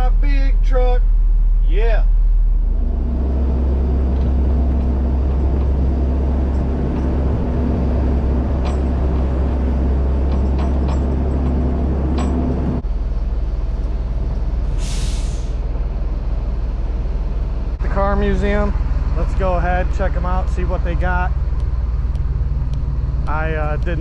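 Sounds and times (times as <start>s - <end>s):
truck engine rumbling: 0.0s - 24.0s
air brake hiss: 14.7s - 15.6s.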